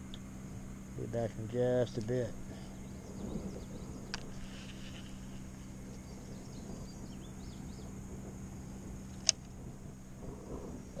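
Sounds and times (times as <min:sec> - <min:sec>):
steady low hum: 0:00.0 - 0:11.0
faint bird chirps: 0:02.4 - 0:08.0.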